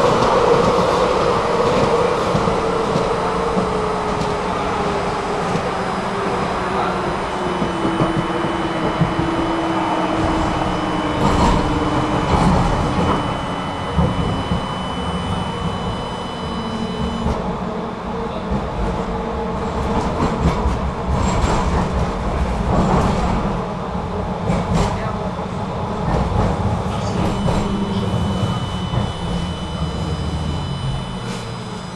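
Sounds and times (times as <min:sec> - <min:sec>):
tram whine falling in pitch: 0:00.0 - 0:17.7, 0:25.6 - 0:31.9
tram wheels rumbling on rails: 0:00.0 - 0:31.9.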